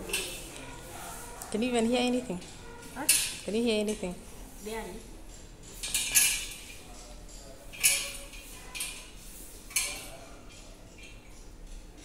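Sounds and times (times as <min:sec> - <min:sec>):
chain leash rattling on metal table: 0:05.3 - 0:09.1.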